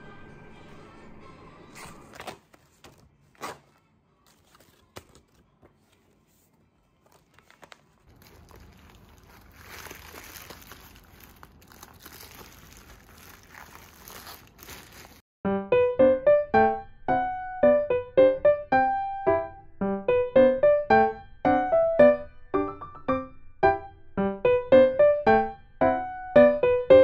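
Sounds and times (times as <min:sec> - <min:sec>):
paper card rustling and clicking: 0:02.0 - 0:15.2
bubble wrap crinkling: 0:02.1 - 0:15.2.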